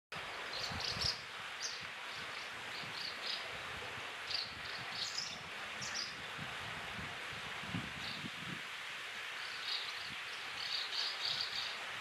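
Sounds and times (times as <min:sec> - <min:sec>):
steady background hiss: 0:00.2 - 0:12.0
bird fledglings chirping: 0:00.5 - 0:03.4, 0:09.4 - 0:11.8.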